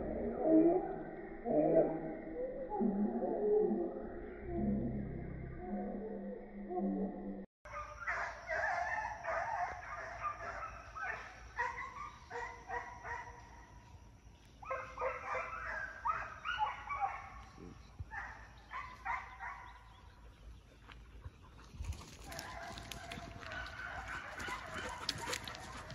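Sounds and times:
hounds baying: 7.7 - 13.8, 14.6 - 25.9.

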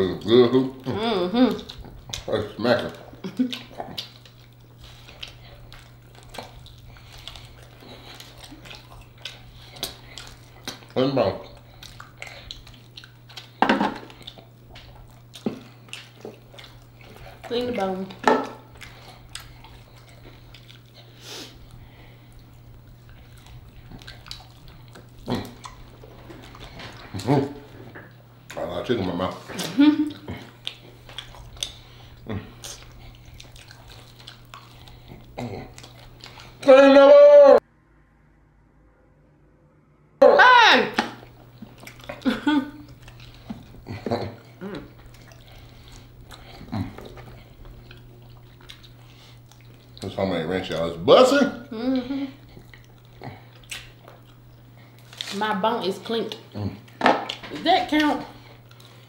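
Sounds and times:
person humming with enjoyment: 0.0 - 1.8, 36.6 - 37.6, 43.8 - 45.0, 51.7 - 52.4
people chewing wet smacks: 0.0 - 36.8, 40.8 - 59.0
steady low hum: 0.0 - 36.8, 37.6 - 59.0.

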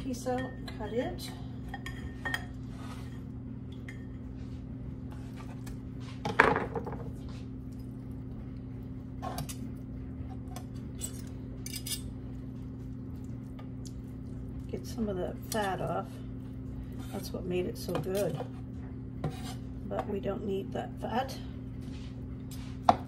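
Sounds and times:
steady low hum: 0.0 - 23.0
metal utensils clinking on dish: 11.0 - 12.1.

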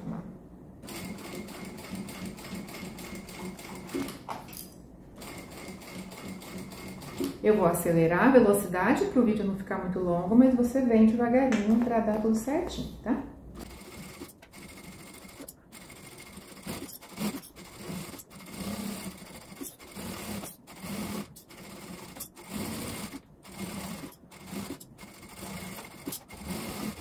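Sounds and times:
sewing machine stitching: 0.8 - 4.2, 5.2 - 7.4, 13.6 - 27.0.

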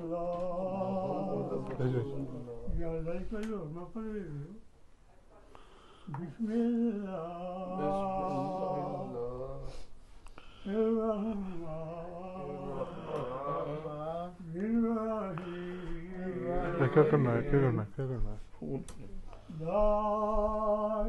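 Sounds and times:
person chanting melodically: 0.0 - 3.4, 6.5 - 9.7, 10.7 - 17.8.

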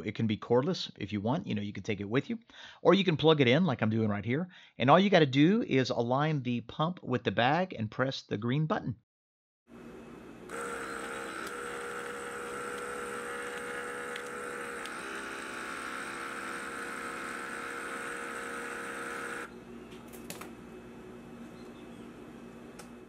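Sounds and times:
vacuum sealer pump whine: 9.7 - 20.0.

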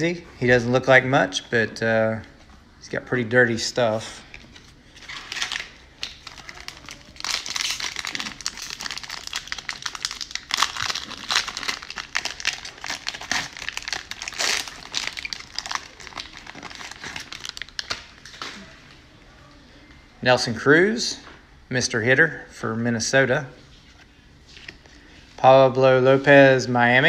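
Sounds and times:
cellophane wrapper crinkling: 4.5 - 18.6.

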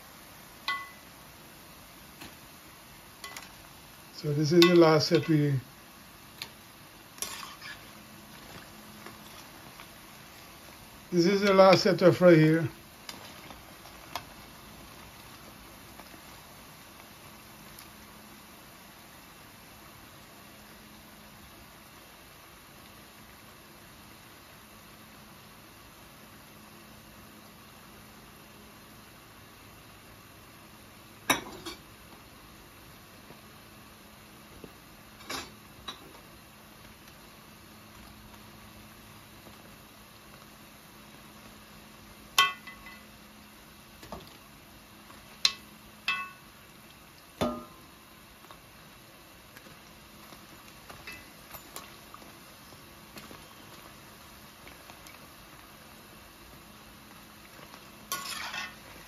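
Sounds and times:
deep-frying oil sizzle: 0.0 - 59.0
utensil clinking on cookware: 0.7 - 1.0, 3.2 - 3.5, 4.5 - 5.3, 42.4 - 43.1, 45.5 - 46.4, 58.1 - 58.8.

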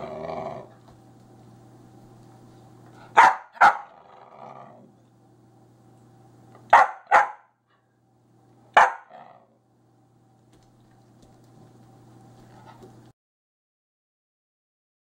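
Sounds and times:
dog barking: 3.1 - 4.0, 6.7 - 7.6, 8.8 - 9.4.

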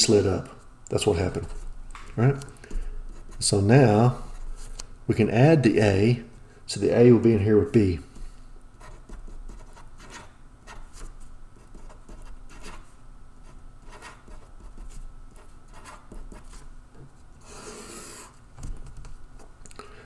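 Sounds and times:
marker rubbing across paper: 8.8 - 16.7, 17.4 - 18.4
marker scratching on paper: 8.8 - 16.7, 17.4 - 18.4.

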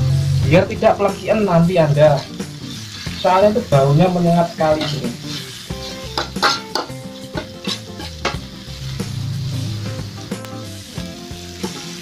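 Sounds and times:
food sizzling in hot oil: 0.0 - 12.0
metal spatula scraping pan: 4.7 - 9.9.

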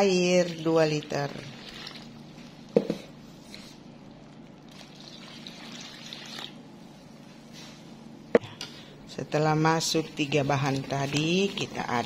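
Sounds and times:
water pouring into metal bowl: 0.5 - 2.2, 4.7 - 6.6.

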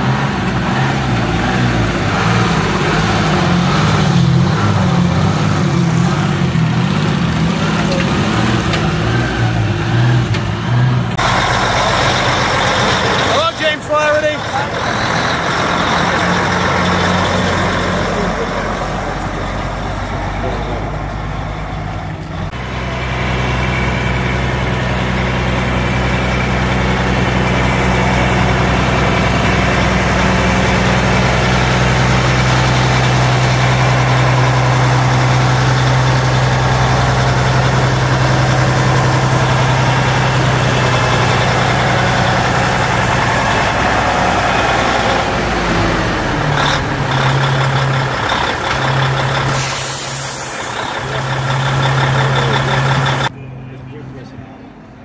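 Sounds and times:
diesel truck engine running: 0.0 - 55.0
air hiss: 49.5 - 50.8.

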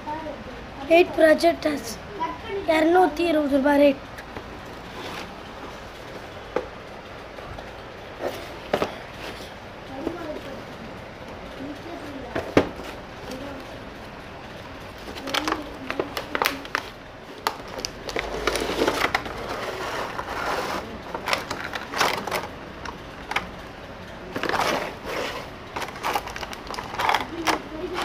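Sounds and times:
cardboard and plastic rustling: 4.7 - 6.4, 14.9 - 23.6, 24.2 - 28.0.

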